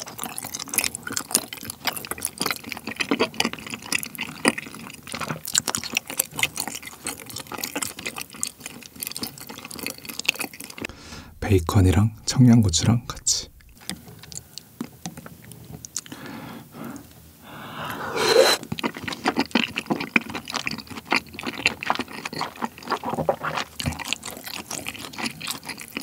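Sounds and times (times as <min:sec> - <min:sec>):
wet sticky chewing: 0:00.0 - 0:10.9, 0:13.5 - 0:16.2, 0:18.6 - 0:26.0
loud slurp: 0:17.5 - 0:19.0.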